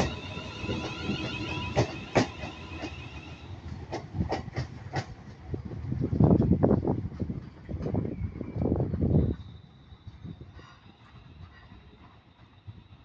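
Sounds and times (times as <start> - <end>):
train wheels clicking over rail joints: 0.0 - 9.4.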